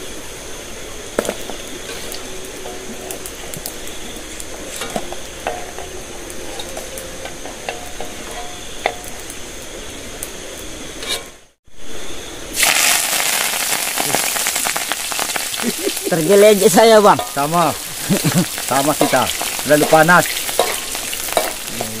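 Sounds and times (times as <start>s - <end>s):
steady hiss: 0.0s - 22.0s
utensil clinking in a pot: 4.6s - 9.2s, 17.1s - 22.0s
food frying in hot oil: 12.5s - 22.0s.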